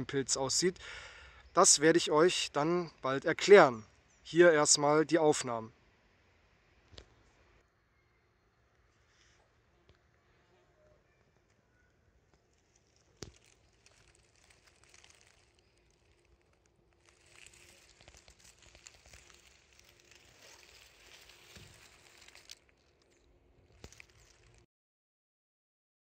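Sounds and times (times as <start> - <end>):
faint fine crackling: 8.8 - 24.7.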